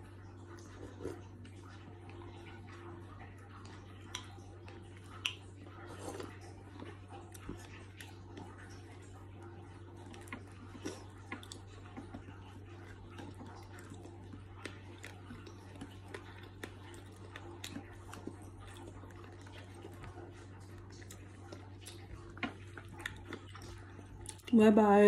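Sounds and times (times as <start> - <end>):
person chewing sandwich: 0.0 - 24.6.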